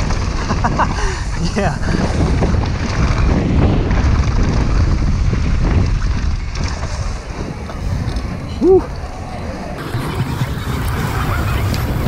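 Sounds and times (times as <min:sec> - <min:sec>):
bike rattling over bumps: 0:00.0 - 0:12.0
bike tyres rolling on dirt: 0:00.0 - 0:12.0
wind rushing over microphone: 0:00.0 - 0:12.0.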